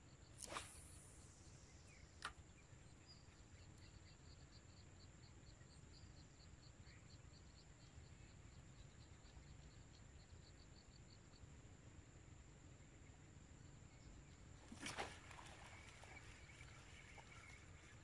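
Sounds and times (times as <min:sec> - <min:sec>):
fishing rod whoosh: 0:00.4 - 0:01.3.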